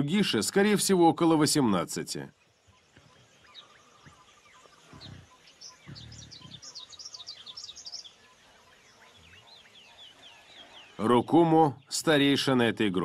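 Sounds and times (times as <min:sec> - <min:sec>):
forest birds chirping: 0:00.0 - 0:13.0
rapid bird trill: 0:02.3 - 0:12.4.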